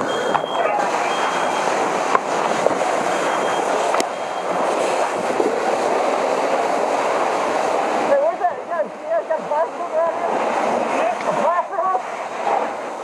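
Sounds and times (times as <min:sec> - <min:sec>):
faint short high beeps: 0:00.0 - 0:01.7, 0:03.1 - 0:04.5
fire hose stream rushing: 0:00.0 - 0:13.0.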